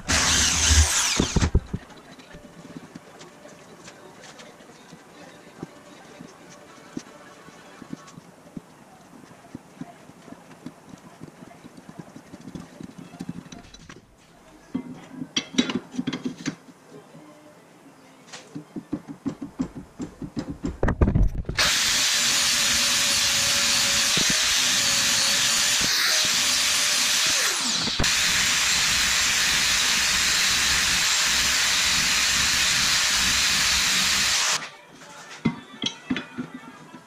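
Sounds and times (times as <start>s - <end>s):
angle grinder grinding metal: 0.0s - 1.8s, 21.6s - 34.7s.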